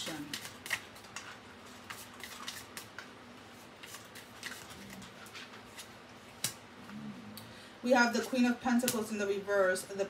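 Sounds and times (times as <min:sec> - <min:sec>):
cards being shuffled: 0:00.0 - 0:06.6.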